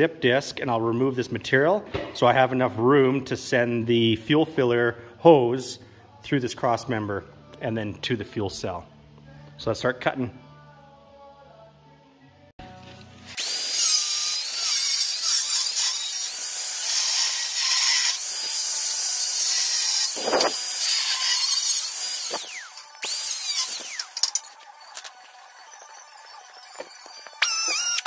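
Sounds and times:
grinder cutting steel: 13.3s - 28.0s.

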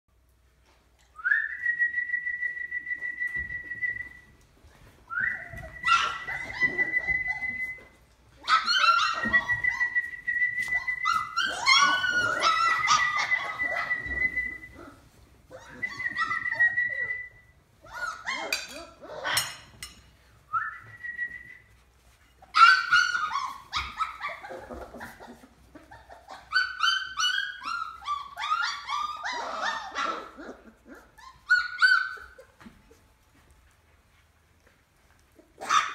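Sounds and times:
puppies yelping and whimpering: 4.8s - 17.1s, 17.8s - 19.7s, 22.4s - 33.2s, 35.2s - 35.9s.

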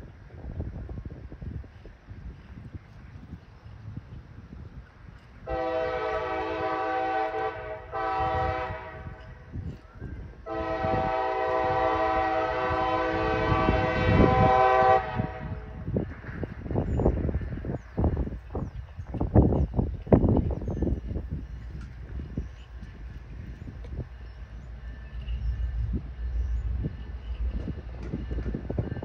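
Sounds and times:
locomotive air horn blasts: 5.4s - 9.4s, 10.4s - 15.9s.

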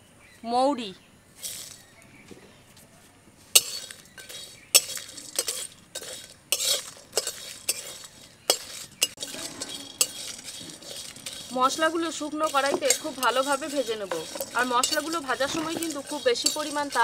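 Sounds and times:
metal spatula scraping metal pan: 3.5s - 17.0s.

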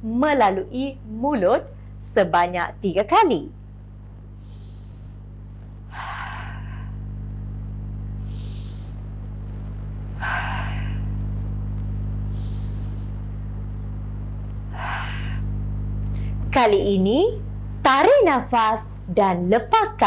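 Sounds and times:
steady low hum: 0.0s - 20.0s
woman breathing deeply: 4.3s - 7.3s, 8.1s - 9.3s, 10.1s - 13.6s, 14.6s - 16.5s.

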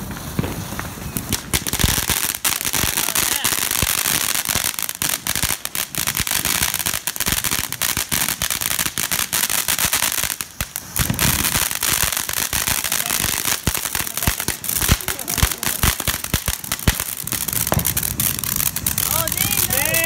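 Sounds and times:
fireworks fountains hissing: 0.0s - 20.0s
crackling pops: 10.4s - 20.0s.

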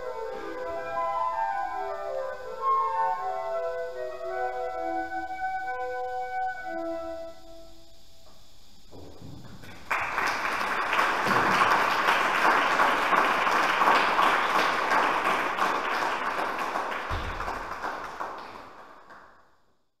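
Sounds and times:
audience applauding: 9.6s - 19.4s.

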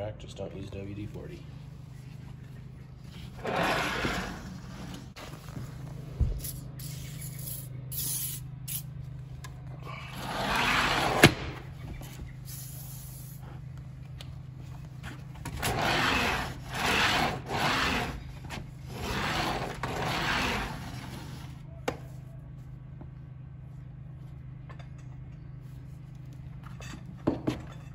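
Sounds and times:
screen door scraping on track: 3.0s - 6.0s, 10.1s - 12.0s, 15.4s - 21.7s
aerosol spray hissing: 6.4s - 8.9s.

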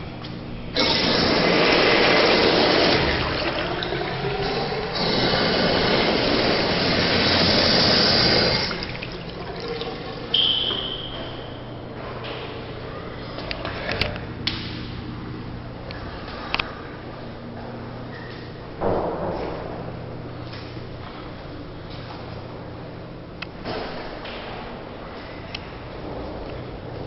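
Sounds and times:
urinal flushing water rush: 0.8s - 10.7s
brief high-pitched whistle: 10.3s - 11.6s.

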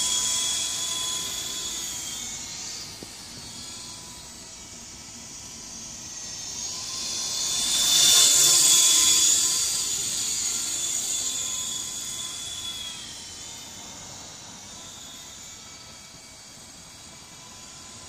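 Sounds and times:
toy helicopter rotor whining: 0.0s - 18.0s.

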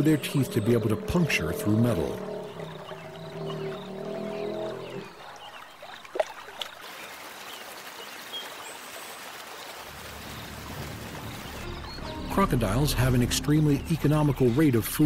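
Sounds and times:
water lapping: 0.0s - 15.0s
water splashing and trickling: 0.0s - 15.0s
sharp water splashes: 5.3s - 11.8s.

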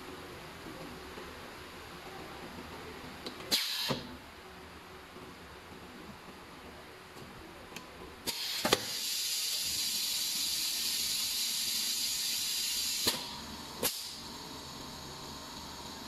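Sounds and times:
pneumatic cylinders clacking: 3.5s - 4.1s, 8.2s - 14.2s
compressed air hissing: 8.3s - 14.3s.

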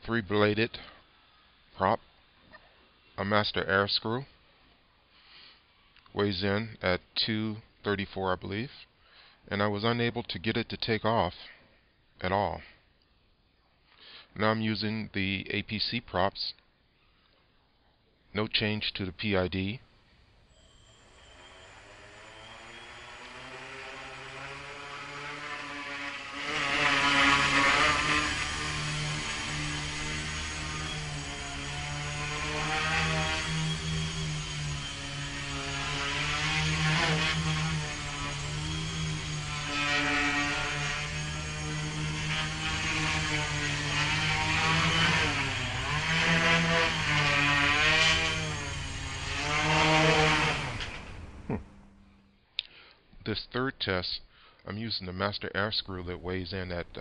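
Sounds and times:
electric motors and propellers whirring: 20.4s - 52.3s.

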